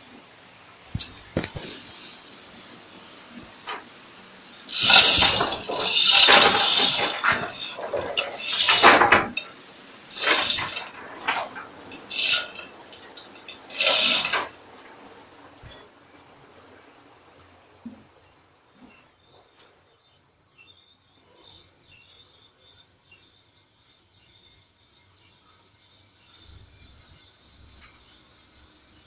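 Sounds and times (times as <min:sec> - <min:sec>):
metal chain clattering: 0:04.7 - 0:14.6.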